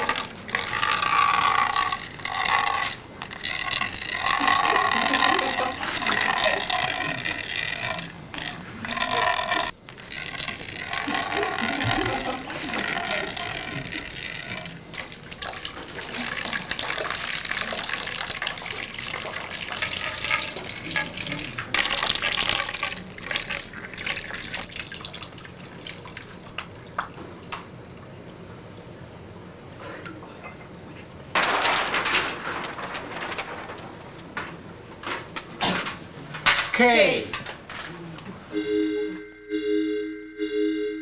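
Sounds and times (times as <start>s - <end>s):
water pouring into glass bowl: 0.0s - 27.4s.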